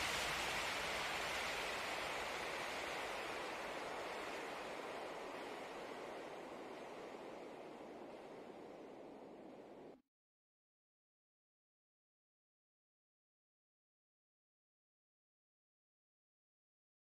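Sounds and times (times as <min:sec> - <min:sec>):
steady rushing noise: 0:00.0 - 0:10.0.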